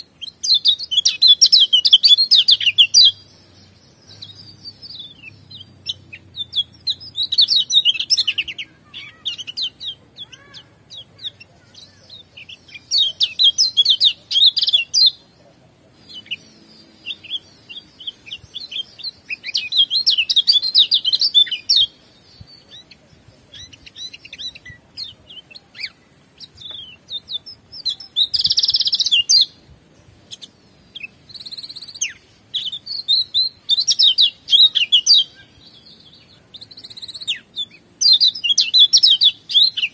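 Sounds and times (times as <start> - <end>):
bird singing twittering song: 0.0 - 39.9
short bird calls: 4.0 - 29.5.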